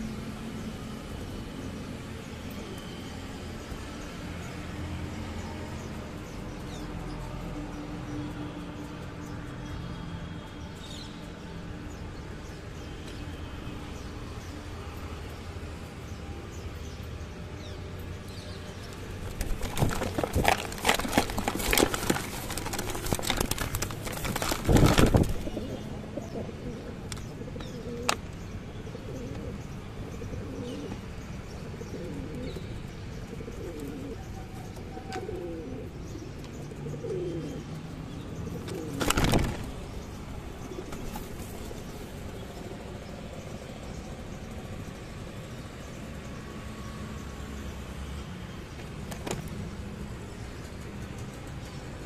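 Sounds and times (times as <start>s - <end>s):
birds scuffling against microphone: 18.4s - 28.2s, 38.4s - 42.2s
wing flutters: 19.2s - 25.8s, 38.6s - 40.0s
pigeons cooing: 19.2s - 28.2s, 28.8s - 42.0s.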